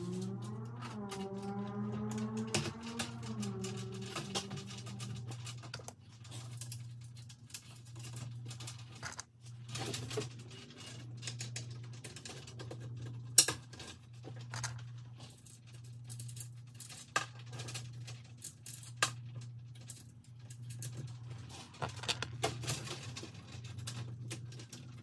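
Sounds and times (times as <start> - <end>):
low hum: 0.0 - 13.4
hardware rattling and scratching: 0.0 - 25.0.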